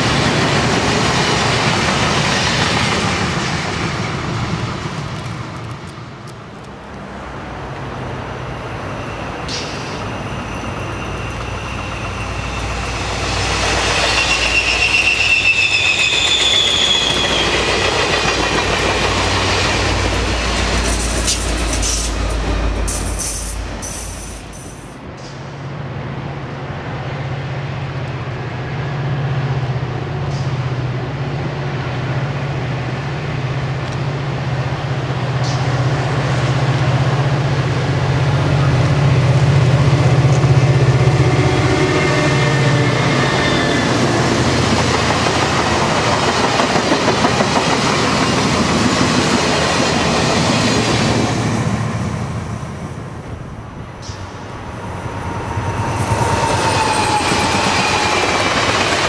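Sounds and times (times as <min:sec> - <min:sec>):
train cars clattering: 0:08.6 - 0:25.5, 0:42.0 - 0:51.8.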